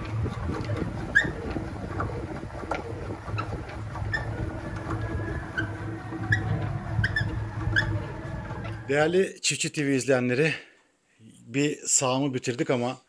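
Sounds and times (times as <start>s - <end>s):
honey extractor rumble: 0.0s - 9.0s.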